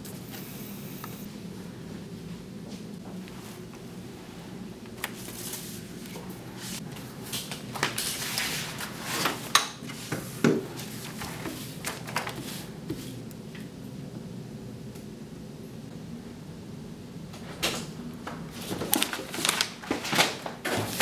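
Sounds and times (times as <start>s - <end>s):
low steady hum: 0.0s - 20.9s
papers rustling: 4.9s - 12.7s, 18.3s - 21.0s.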